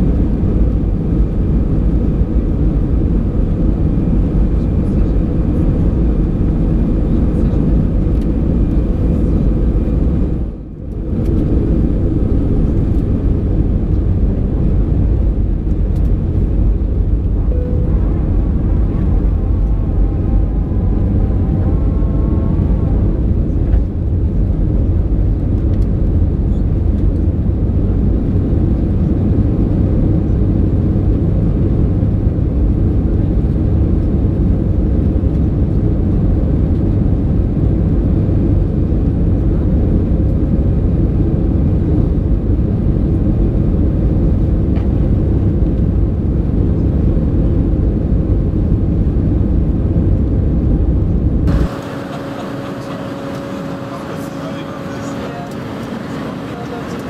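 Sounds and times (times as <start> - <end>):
jet engine cabin rumble: 0.0 - 57.0.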